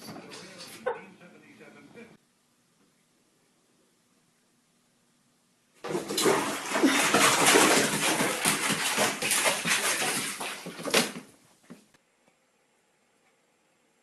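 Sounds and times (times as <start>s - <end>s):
cat splashing in water: 5.8s - 11.3s.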